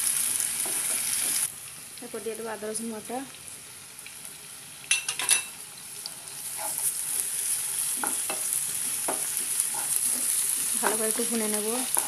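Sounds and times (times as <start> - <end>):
food sizzling in oil: 0.0 - 12.0
spatula knocking on a pan: 8.0 - 9.9.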